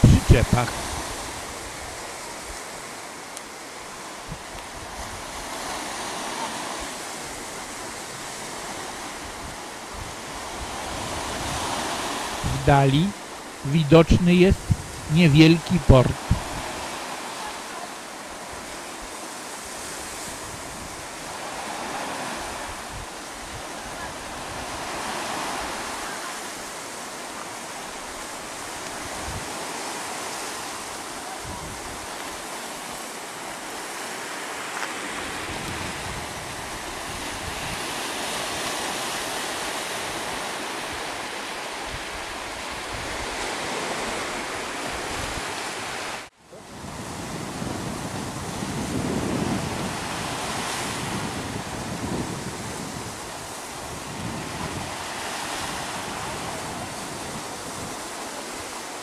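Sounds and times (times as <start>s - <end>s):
wind on microphone: 0.0s - 2.7s, 4.2s - 6.9s, 7.5s - 12.9s, 14.5s - 15.1s, 15.8s - 17.0s, 19.7s - 26.0s, 28.5s - 29.8s, 31.4s - 32.4s, 35.0s - 41.0s, 41.8s - 58.6s.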